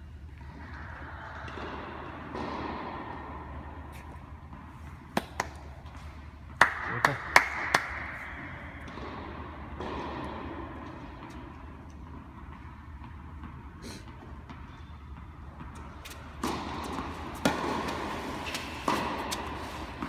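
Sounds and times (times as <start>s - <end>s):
tennis ball hits: 14.4s - 20.0s.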